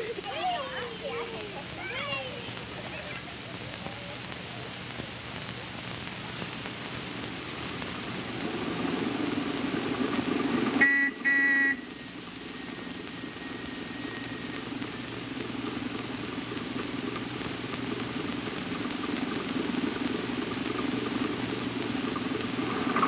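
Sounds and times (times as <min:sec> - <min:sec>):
bus engine approaching: 0:07.9 - 0:10.9
bus horn honks: 0:10.8 - 0:11.8.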